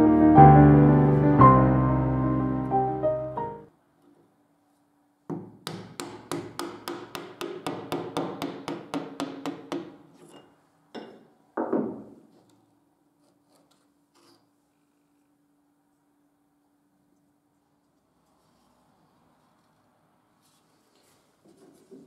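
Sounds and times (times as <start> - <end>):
hammer tapping a chisel: 5.3 - 11.8
knocks on wood: 11.0 - 12.1.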